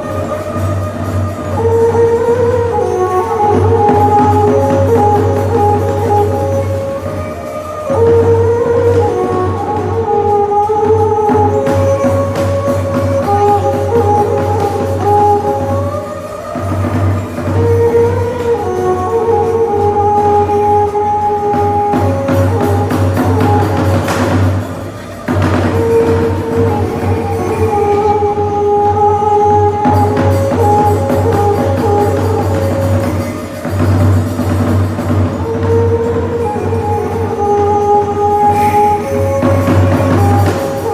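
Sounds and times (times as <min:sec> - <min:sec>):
light percussion: 0:00.0 - 0:40.9
traditional ensemble music: 0:00.0 - 0:40.9.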